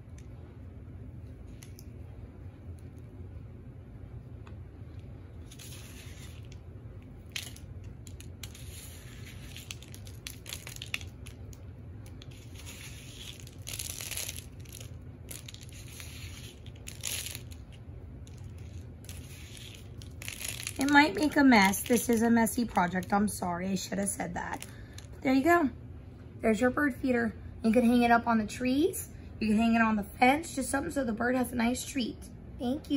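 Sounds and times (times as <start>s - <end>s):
birdseed rustling on paper plate: 5.4s - 6.6s, 7.2s - 23.2s.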